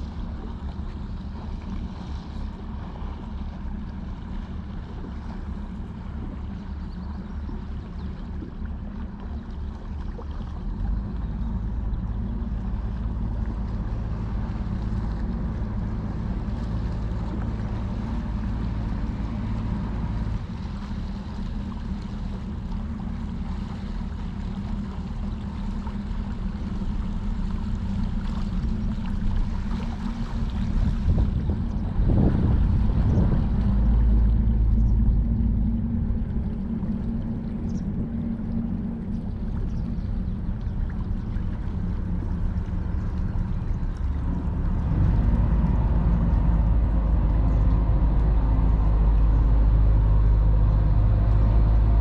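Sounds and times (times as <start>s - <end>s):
boat engine droning: 0.0s - 52.0s.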